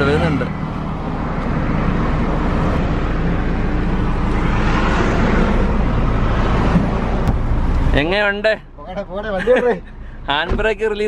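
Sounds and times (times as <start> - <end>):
vehicle passing: 0.0 - 8.0
road traffic noise: 0.0 - 11.0.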